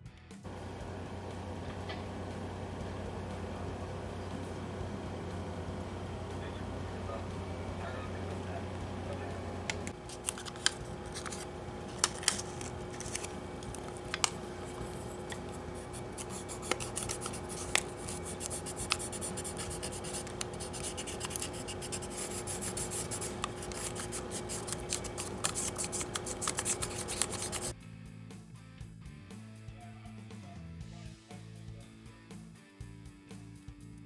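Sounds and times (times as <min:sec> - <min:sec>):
steady hum: 0:00.4 - 0:27.8
pencil scratching on paper: 0:14.6 - 0:27.7.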